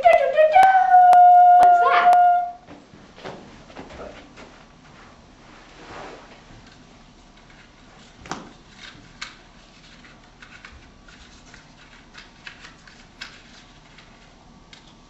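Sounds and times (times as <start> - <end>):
paper rustling and clicks: 7.4 - 15.0.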